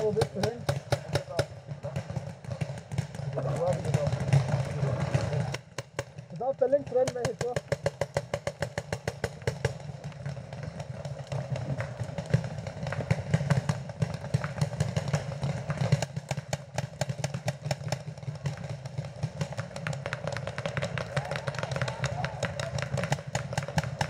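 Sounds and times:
paintball markers popping: 6.7s - 24.0s.

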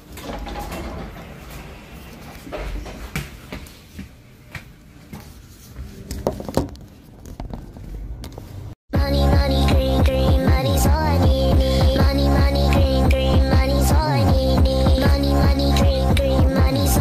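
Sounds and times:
electronic music with beat: 9.0s - 17.0s.

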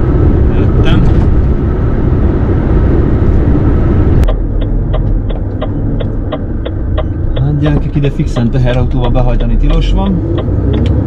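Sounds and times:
lorry engine and road noise: 0.0s - 11.0s
turn indicator clicking: 4.2s - 11.0s.

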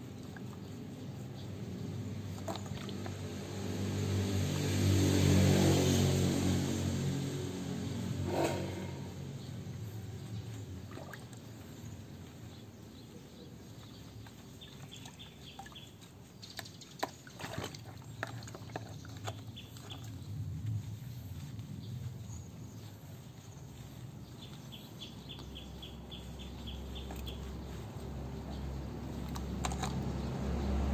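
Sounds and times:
water splashing in a plastic basin: 2.1s - 7.0s, 10.7s - 11.8s, 14.7s - 20.2s.

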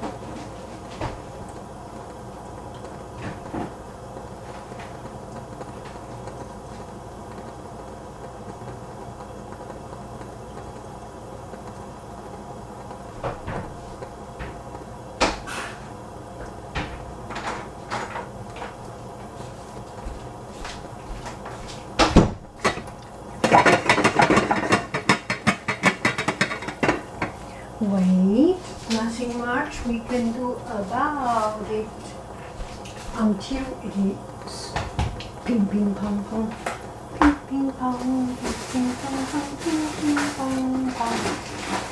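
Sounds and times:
popcorn popping in a pan: 1.4s - 13.1s, 21.9s - 27.6s
pan shaken with rattling lid: 23.4s - 26.9s, 38.4s - 41.9s.

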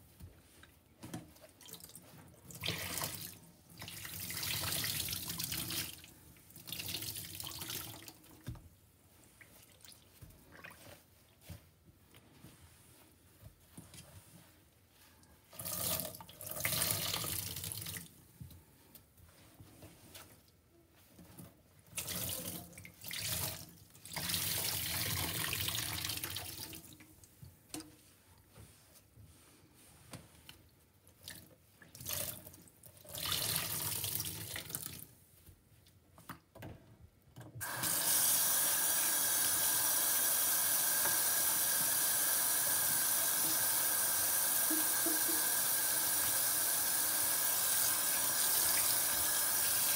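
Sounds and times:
wet sponges squelching: 0.0s - 24.3s, 26.8s - 33.1s
faucet water running: 37.6s - 49.9s.

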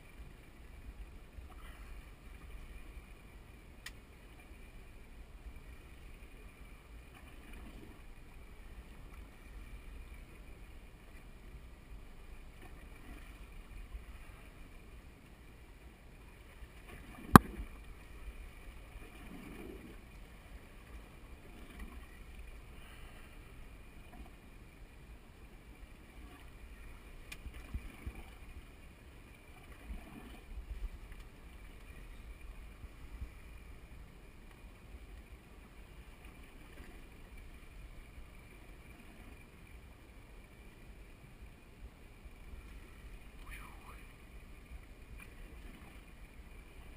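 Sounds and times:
water lapping against boat hull: 16.4s - 24.6s, 25.9s - 39.7s, 42.2s - 46.9s.

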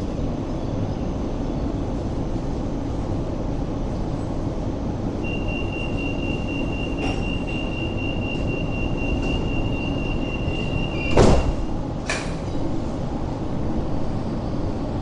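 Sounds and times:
tram humming: 0.0s - 15.0s
high warning tone: 5.2s - 11.8s.

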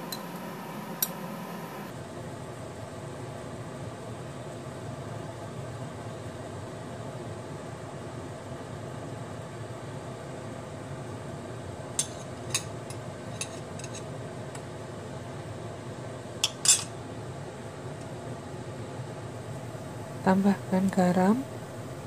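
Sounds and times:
metal spoon clinking on bowl: 12.0s - 12.7s, 16.4s - 16.9s.

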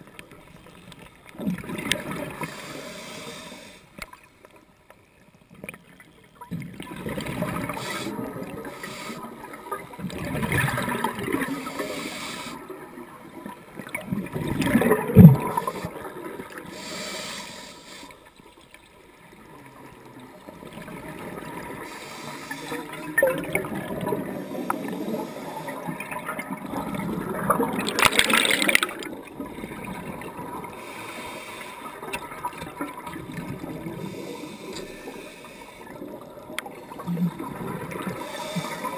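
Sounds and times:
diver's bubbles gurgling underwater: 1.3s - 2.5s, 6.5s - 8.8s, 9.4s - 11.7s, 13.0s - 16.6s, 22.9s - 30.8s, 32.0s - 34.2s, 36.0s - 38.7s.

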